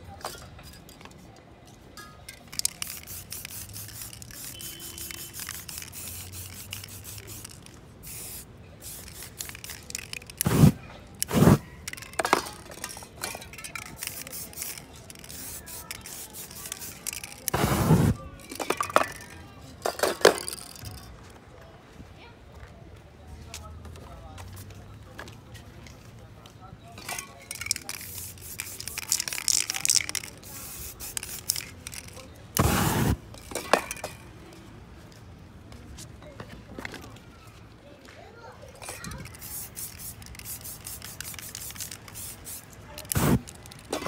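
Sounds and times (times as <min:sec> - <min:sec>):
spray-paint cans hissing: 0:02.4 - 0:19.4, 0:27.1 - 0:34.2, 0:38.8 - 0:44.0
stencils scraping against board: 0:10.2 - 0:11.6, 0:15.4 - 0:18.2, 0:32.6 - 0:33.2, 0:42.2 - 0:43.5
spray flame whoosh: 0:10.5 - 0:11.6, 0:17.6 - 0:18.2, 0:32.6 - 0:33.2, 0:43.2 - 0:43.4.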